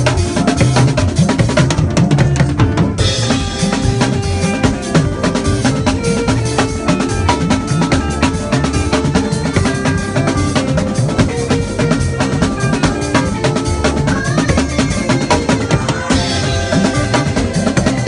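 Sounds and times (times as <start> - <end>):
drum kit and congas: 0.0 - 18.0
sustained instrumental tones: 0.0 - 18.0.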